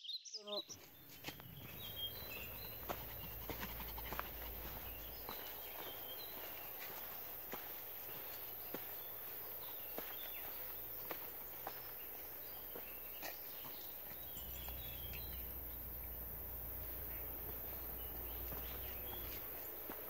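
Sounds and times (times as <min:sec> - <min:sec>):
high bird chirps: 0:00.0 - 0:19.9
footsteps on leaf litter and twigs: 0:00.8 - 0:20.0
low microphone rumble: 0:14.1 - 0:19.8.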